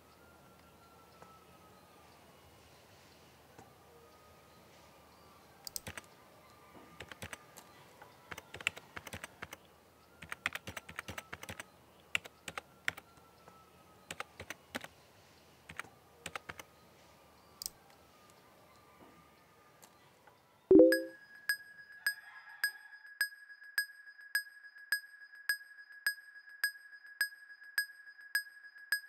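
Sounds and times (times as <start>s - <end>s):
keyboard typing: 5.7s - 6.1s, 7.0s - 7.4s, 8.3s - 9.6s, 10.2s - 13.0s, 14.1s - 14.9s, 15.7s - 16.6s.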